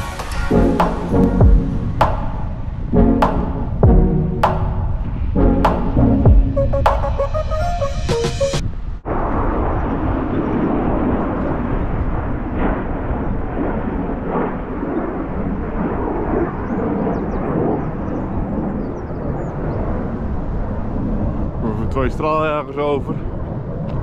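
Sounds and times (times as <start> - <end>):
distant jet rumble: 0.0 - 7.3, 8.1 - 24.0
wind buffeting microphone: 8.6 - 24.0.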